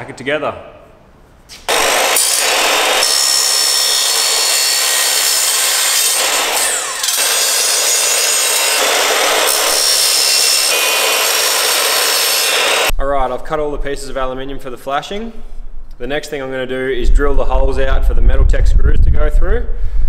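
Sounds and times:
saw blade screeching through metal: 0:01.7 - 0:12.9.

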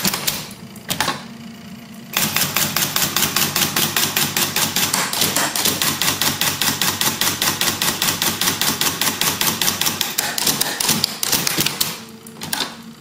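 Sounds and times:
typewriter clacking rapidly: 0:02.2 - 0:12.0.

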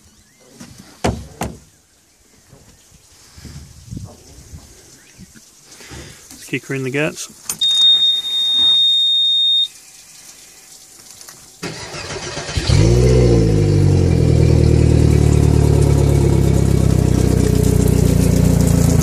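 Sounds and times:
warning buzzer beep: 0:07.6 - 0:09.8
outboard engine revving and idling: 0:11.7 - 0:19.0.

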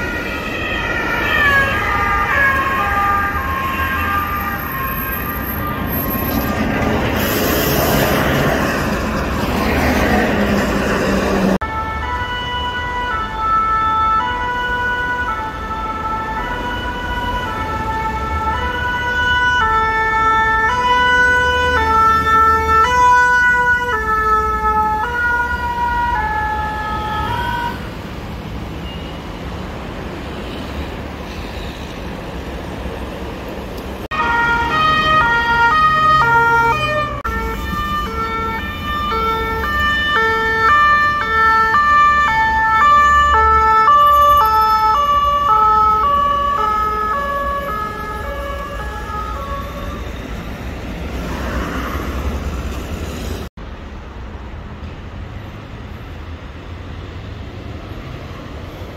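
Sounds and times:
fast two-tone siren: 0:00.0 - 0:06.6, 0:11.6 - 0:28.0, 0:34.1 - 0:50.7
two-tone emergency siren: 0:00.0 - 0:06.6, 0:11.4 - 0:28.0, 0:34.1 - 0:51.0
rush of passing traffic: 0:00.0 - 0:58.9
traffic noise: 0:00.0 - 0:58.9.

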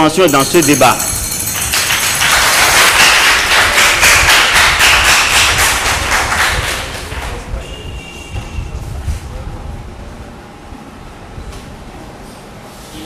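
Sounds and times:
audience applause: 0:01.6 - 0:07.5.

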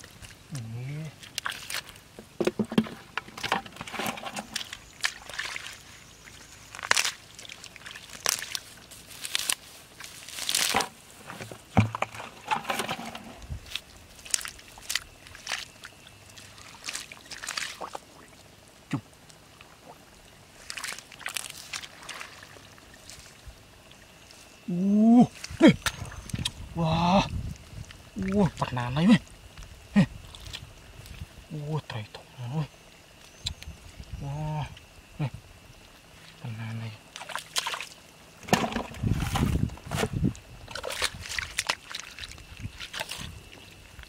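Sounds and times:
hands splashing in muddy water: 0:04.1 - 0:11.0, 0:11.7 - 0:18.3, 0:20.6 - 0:23.4, 0:37.1 - 0:44.0
man exclaiming: 0:24.7 - 0:25.8, 0:26.8 - 0:27.3.

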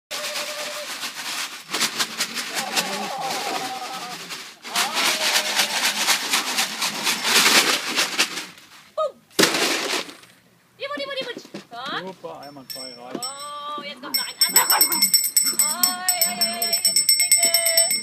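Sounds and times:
scratchy rustling: 0:00.1 - 0:10.4.

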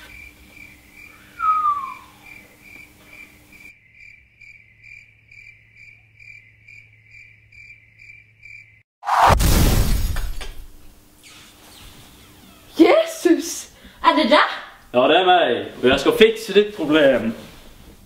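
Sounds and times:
cricket chirping: 0:00.0 - 0:08.8.

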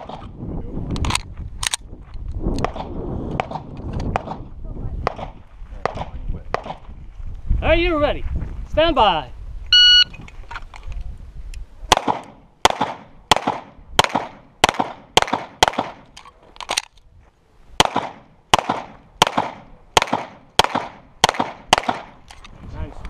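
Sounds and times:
pistol shots echoing: 0:11.9 - 0:16.1, 0:17.8 - 0:22.2.

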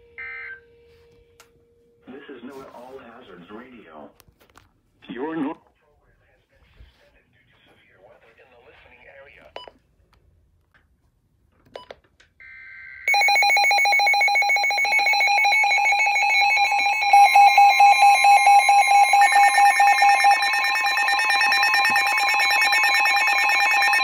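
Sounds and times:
higher electronic beeping: 0:13.1 - 0:24.0
rapid electronic beeping: 0:13.1 - 0:24.0
steady warning alarm tone: 0:13.1 - 0:24.0.

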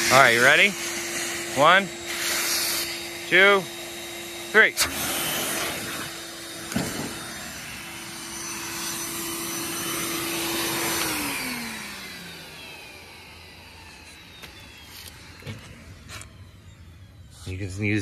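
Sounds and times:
rushing air: 0:00.0 - 0:03.3
electric blower motor whine: 0:00.0 - 0:18.0
motor spinning down: 0:00.0 - 0:18.0.

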